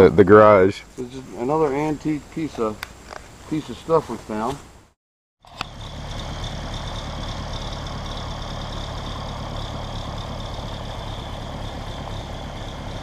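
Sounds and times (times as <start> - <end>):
tractor engine idling: 5.4 - 13.0
constant high hum: 5.5 - 13.0.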